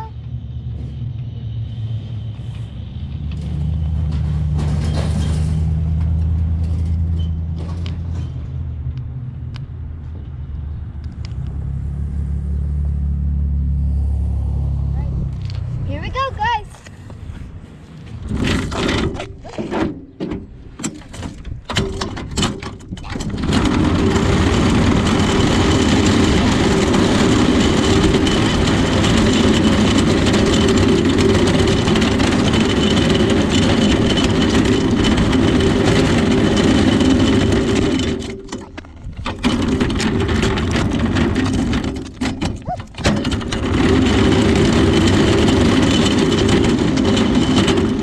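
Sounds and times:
road and engine noise: 0.0s - 48.0s
knocks and rattles: 3.2s - 8.7s, 18.1s - 48.0s.

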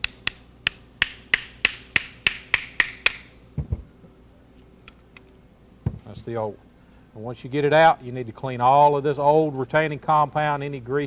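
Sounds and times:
hammer tapping on metal: 0.0s - 3.3s
dull knock: 3.6s - 3.9s, 5.8s - 6.1s.

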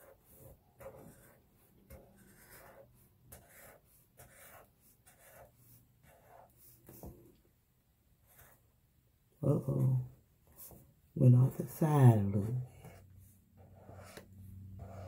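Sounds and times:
marker scratching on paper: 0.0s - 7.2s, 8.2s - 8.6s, 12.0s - 15.0s.

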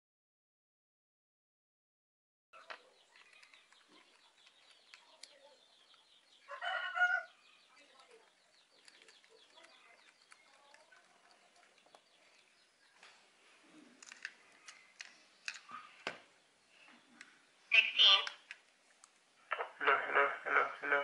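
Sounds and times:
chicken calling: 2.6s - 7.8s
small clicks: 2.7s - 6.1s, 7.7s - 13.2s, 14.0s - 15.7s.

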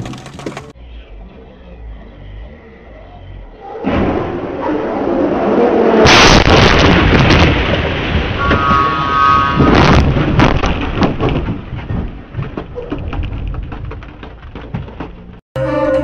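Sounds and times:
clicks and rattles: 0.0s - 0.8s, 10.2s - 15.4s
car crash: 3.8s - 15.1s.

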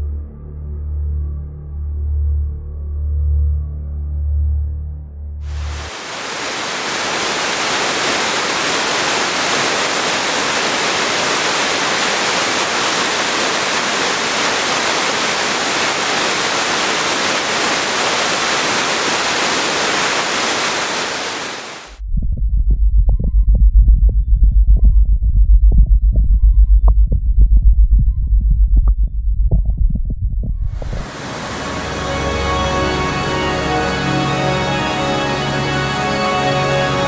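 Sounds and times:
music with low throbbing pulse: 0.0s - 5.4s, 22.0s - 31.0s
waterfall rushing: 5.5s - 22.0s, 30.8s - 37.0s.

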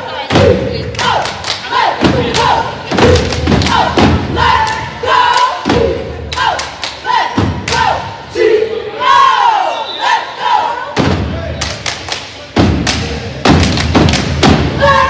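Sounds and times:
cheerleaders chanting in unison: 0.0s - 11.6s, 12.7s - 15.0s
loud stomps: 2.0s - 4.8s, 11.0s - 11.8s, 12.6s - 15.0s
hand claps: 2.3s - 3.8s, 11.6s - 14.5s.

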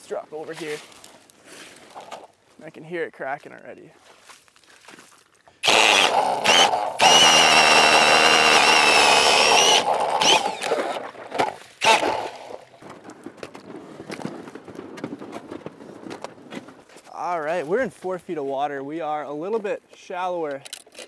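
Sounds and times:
ice auger motor whining: 5.6s - 12.8s.

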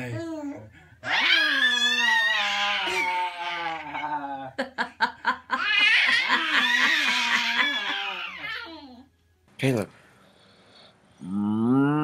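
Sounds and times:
baby laughing: 5.5s - 9.0s.

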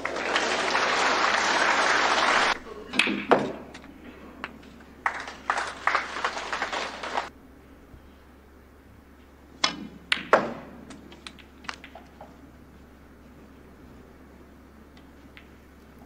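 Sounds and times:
crackling noise: 4.6s - 7.3s
cue striking ball: 9.6s - 10.7s
snooker balls clicking: 9.6s - 12.4s, 14.9s - 16.0s.

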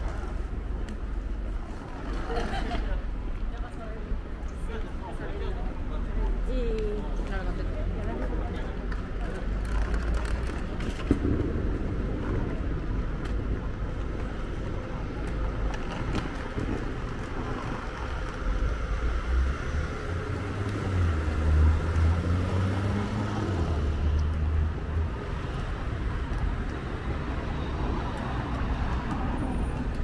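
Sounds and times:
low rumble of road noise: 0.0s - 30.0s
vehicle engine hum passing: 16.3s - 30.0s.

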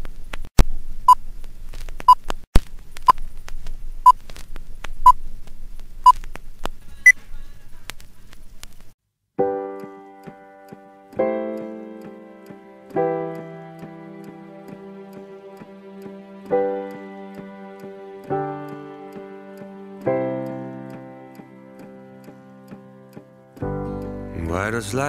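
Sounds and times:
old film crackle and clicks: 0.0s - 6.8s, 7.8s - 9.0s
piano chords: 9.4s - 25.0s.

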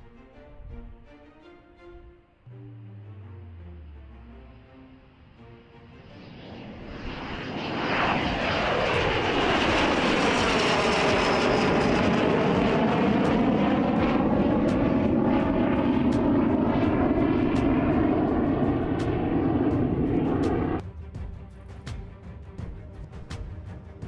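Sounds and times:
jet engine flying past: 2.7s - 20.8s.

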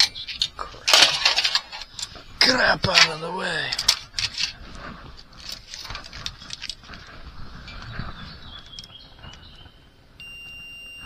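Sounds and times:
probe leads being handled: 2.9s - 9.4s.

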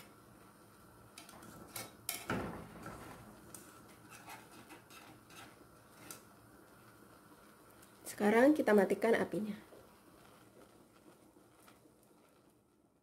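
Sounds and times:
whisk scraping metal saucepan: 2.8s - 6.2s.

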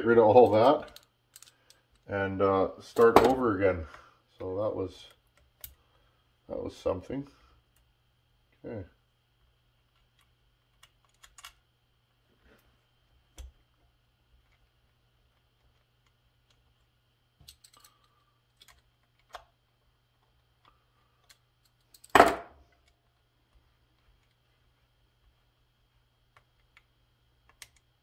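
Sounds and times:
light clicks and taps of parts: 0.4s - 2.1s, 20.2s - 24.6s.

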